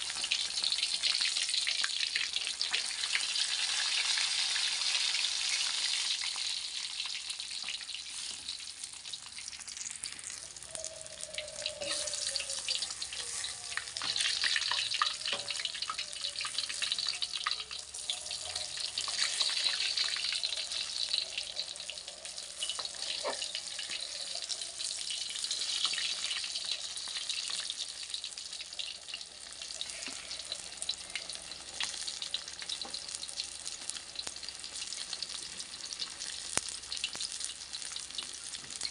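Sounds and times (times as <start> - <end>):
fish deep-frying in oil: 0.0 - 38.9
metal spatula clicks and scrapes: 22.6 - 23.9.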